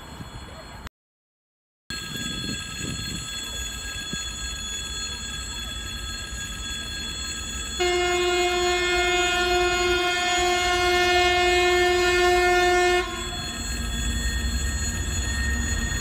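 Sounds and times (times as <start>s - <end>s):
diesel train rumble and whine: 1.9s - 16.0s
locomotive horn: 7.8s - 13.8s.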